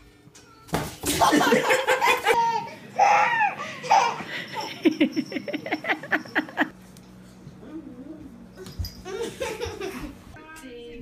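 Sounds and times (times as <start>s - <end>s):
child laughing: 1.1s - 6.7s, 9.0s - 10.2s.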